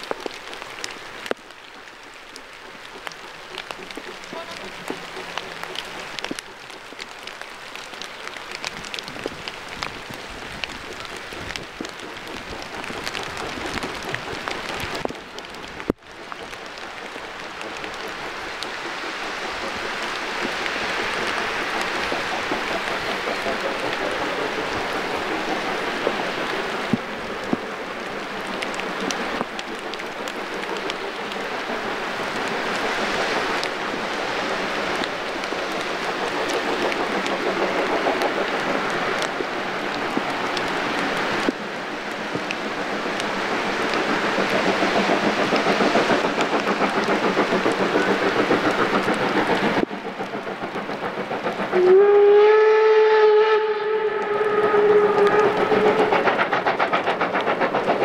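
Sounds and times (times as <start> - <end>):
steady rain hiss: 0.0 - 58.0
steam locomotive whistle: 51.8 - 56.3.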